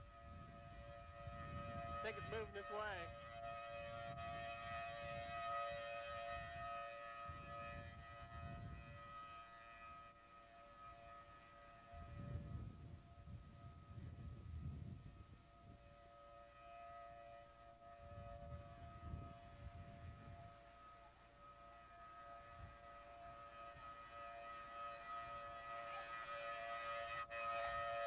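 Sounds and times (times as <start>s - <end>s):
wind buffeting microphone: 0.0s - 3.2s, 3.8s - 9.2s, 11.9s - 15.9s, 18.0s - 20.6s
distant warning siren: 0.0s - 28.0s.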